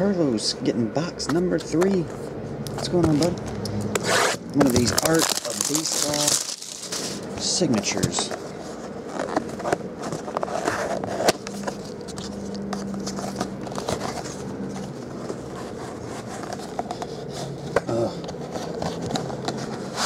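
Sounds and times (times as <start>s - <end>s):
cardboard box scraping and rustling: 4.0s - 20.0s.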